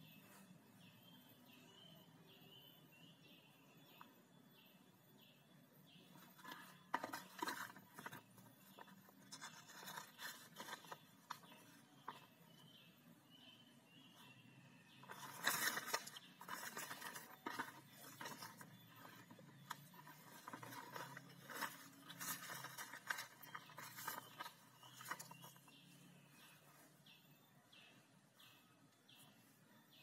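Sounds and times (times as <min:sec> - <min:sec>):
paper rustling and crinkling: 0:06.2 - 0:12.3, 0:15.0 - 0:25.7.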